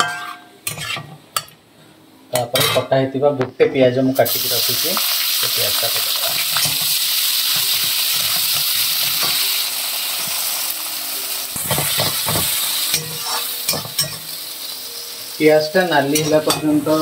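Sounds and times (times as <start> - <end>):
spatula scraping and tapping pan: 0.0 - 1.6
onions sizzling in oil: 4.2 - 17.0.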